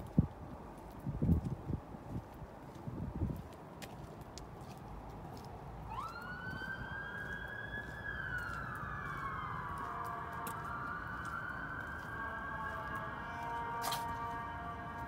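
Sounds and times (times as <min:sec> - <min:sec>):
emergency siren wailing: 0:05.8 - 0:15.0.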